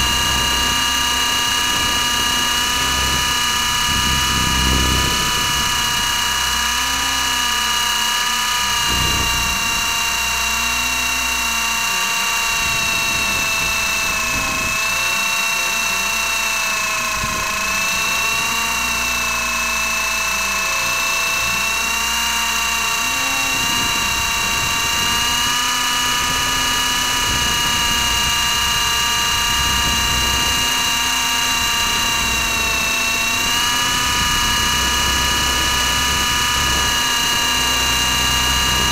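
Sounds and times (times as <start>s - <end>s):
drone motor whine: 0.0s - 38.9s.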